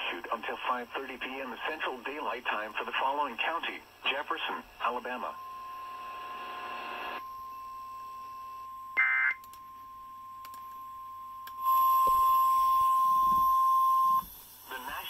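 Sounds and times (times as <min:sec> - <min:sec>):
faint steady tone: 0:02.1 - 0:15.0
loud steady attention tone: 0:03.2 - 0:15.0.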